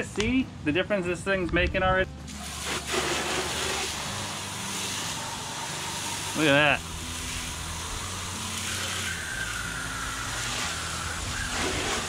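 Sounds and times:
water spattering on driveway: 0:02.3 - 0:05.2, 0:06.0 - 0:12.0
water spraying against hull: 0:02.3 - 0:12.0.

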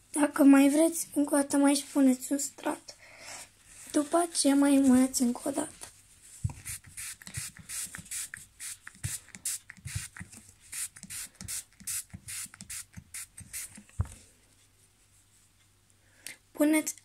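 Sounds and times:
spray bottle squirting: 0:06.5 - 0:13.8.

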